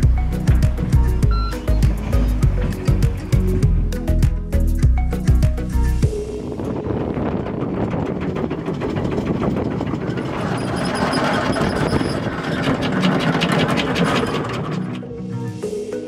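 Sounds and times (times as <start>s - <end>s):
windlass motor running: 0.0s - 3.9s, 5.0s - 15.5s
anchor chain clanking: 6.6s - 15.1s.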